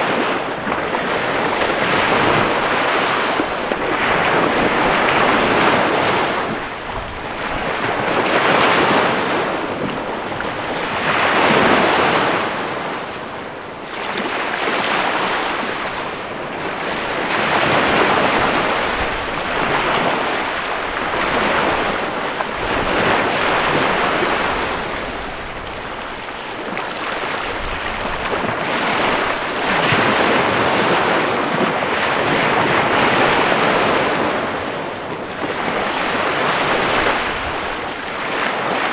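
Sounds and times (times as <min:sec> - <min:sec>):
waves breaking on sandy shore: 0:00.0 - 0:38.9.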